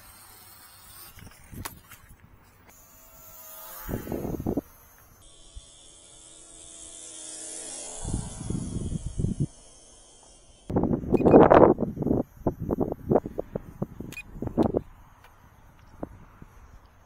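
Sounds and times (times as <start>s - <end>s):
model plane motor whining: 0.0s - 17.0s
loud low rumbling: 7.7s - 13.4s.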